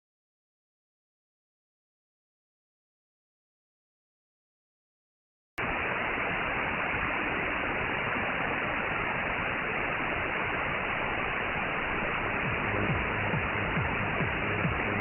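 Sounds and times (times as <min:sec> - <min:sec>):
shortwave radio static hiss: 0:05.6 - 0:15.0.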